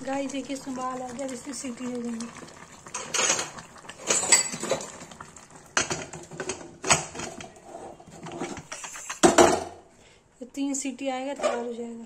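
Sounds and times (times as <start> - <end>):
metal lid clanking and scraping: 3.0 - 4.9, 5.8 - 9.7.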